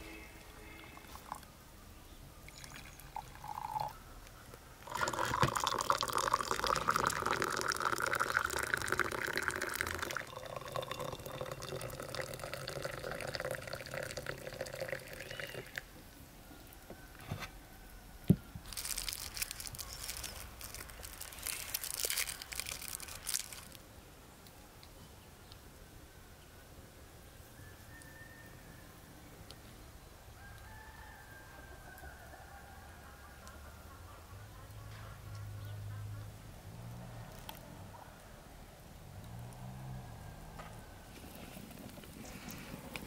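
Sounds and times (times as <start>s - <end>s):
tea pouring into cups: 2.4s - 4.0s, 4.8s - 15.9s, 18.7s - 23.8s
candy wrapper crinkling: 18.6s - 23.8s.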